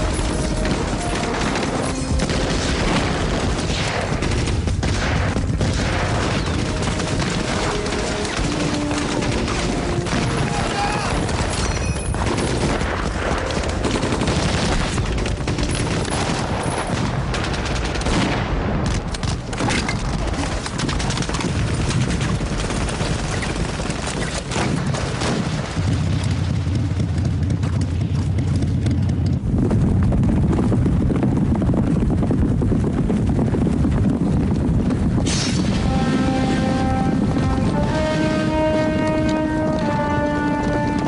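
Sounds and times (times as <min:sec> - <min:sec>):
rifle and machine-gun fire: 0:00.0 - 0:31.0.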